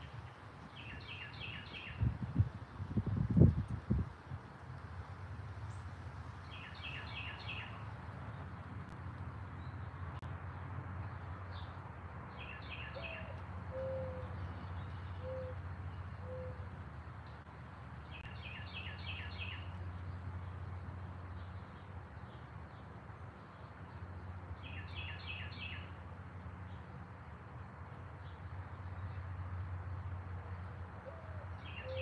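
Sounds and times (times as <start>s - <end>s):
songbird chirping: 0.0s - 2.1s, 5.6s - 8.9s, 9.5s - 26.0s, 27.9s - 32.0s
dove cooing: 13.0s - 14.4s.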